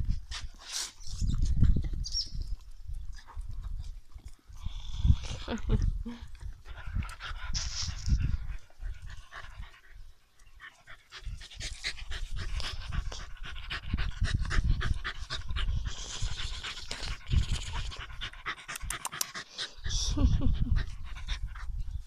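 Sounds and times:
dog panting: 10.6 - 21.9.

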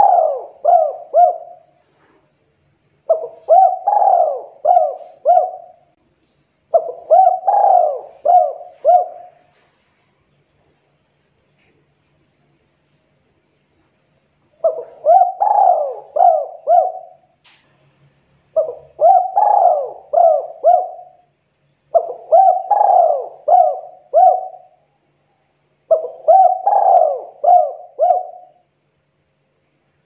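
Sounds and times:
dove cooing: 0.0 - 2.2, 3.1 - 5.9, 6.7 - 9.6, 14.6 - 17.3, 18.5 - 21.3, 21.9 - 24.9, 25.9 - 28.6.

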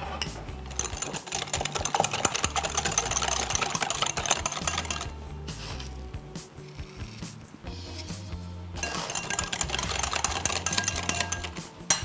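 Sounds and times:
soft background music: 0.0 - 12.0
whisk clicking against glass bowl: 0.7 - 5.1, 8.8 - 12.0.

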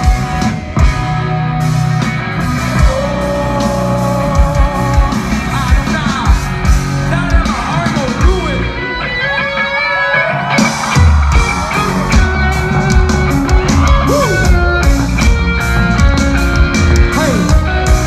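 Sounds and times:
drums and bass: 0.0 - 18.0
live rock band playing: 0.0 - 18.0
electric guitar notes gliding: 11.4 - 18.0.

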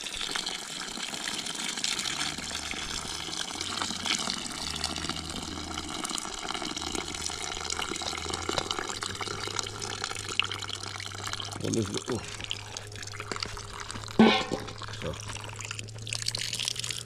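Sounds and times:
liquid trickling and splashing: 0.0 - 17.0
low steady hum: 4.4 - 17.0.

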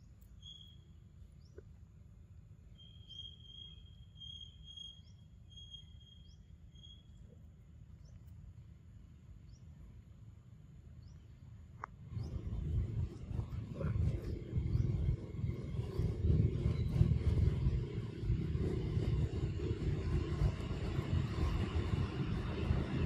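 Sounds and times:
low steady rumble: 0.0 - 23.0
high-pitched insect drone: 2.8 - 7.2.

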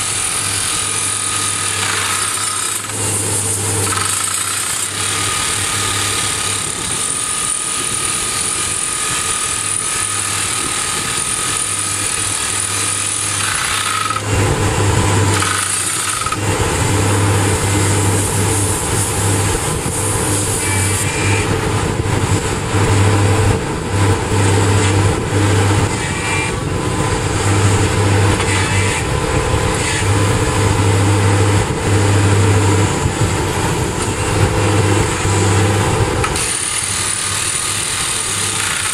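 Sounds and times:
drill hammering on rock: 0.0 - 38.9
engine running: 0.0 - 38.9.

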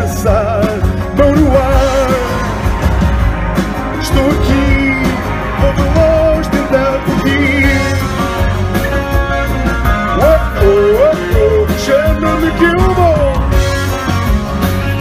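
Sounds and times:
man singing: 0.0 - 3.0, 3.8 - 8.6, 10.0 - 13.6
electric bass: 0.0 - 15.0
strummed acoustic guitar: 0.0 - 15.0.

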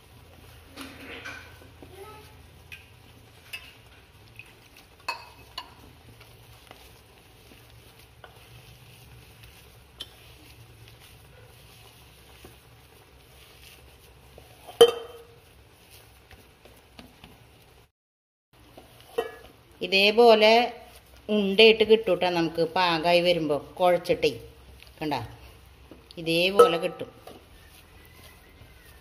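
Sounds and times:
dough being kneaded by hand: 0.0 - 17.9, 18.6 - 29.0.

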